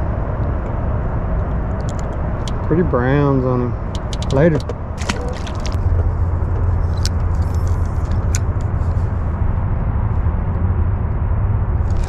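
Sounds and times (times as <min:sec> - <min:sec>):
steady low rumble: 0:00.0 - 0:12.0
light sharp clicks: 0:03.9 - 0:05.8.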